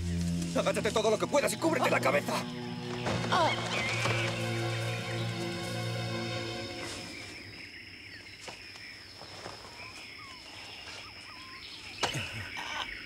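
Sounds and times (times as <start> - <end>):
music: 0.0 - 7.4
high insect whine: 0.0 - 13.0
bird chirps: 1.4 - 13.0.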